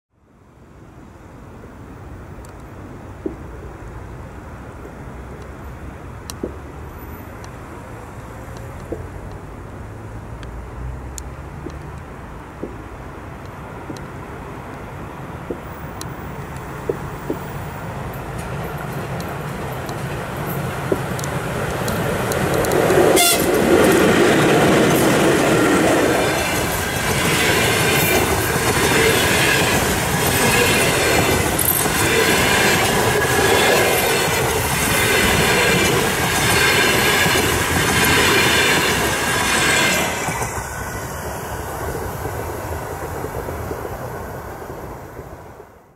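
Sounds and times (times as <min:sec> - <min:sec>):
train rolling past: 0:03.2 - 0:45.9
wheels clattering over rail joints: 0:16.4 - 0:41.4.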